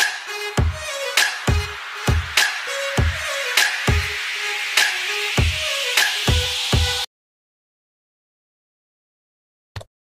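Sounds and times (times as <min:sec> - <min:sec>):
electronic music with beat: 0:00.0 - 0:07.1.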